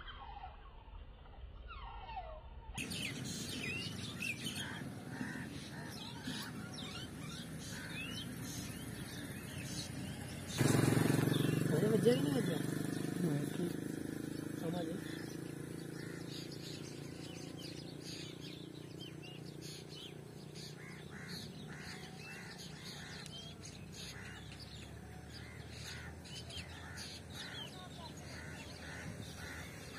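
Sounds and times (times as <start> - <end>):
birds chirping: 2.8 - 29.9
short repeated bird calls: 15.0 - 29.9.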